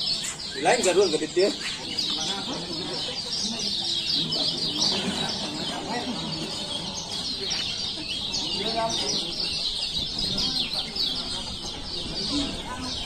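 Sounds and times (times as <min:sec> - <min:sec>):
caged birds chirping: 0:00.0 - 0:13.0
murmur of crowd talking: 0:00.0 - 0:13.0.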